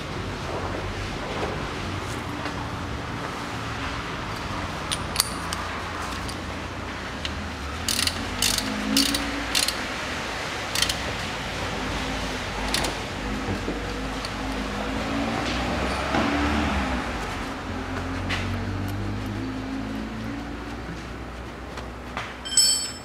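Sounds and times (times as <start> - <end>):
ratchet wrench clicking: 4.4 - 6.4, 7.2 - 9.8, 10.7 - 11.1, 12.7 - 13.0.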